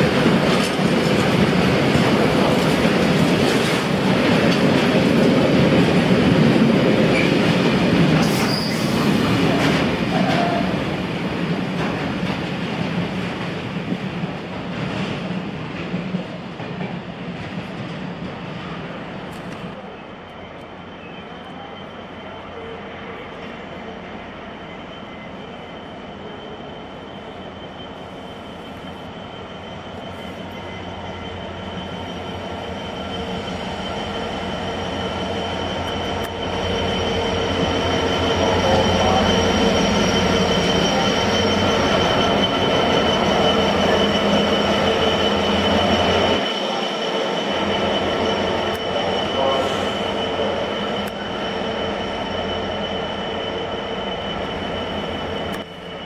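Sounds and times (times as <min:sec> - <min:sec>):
diesel locomotive passing: 0:00.0 - 0:56.0.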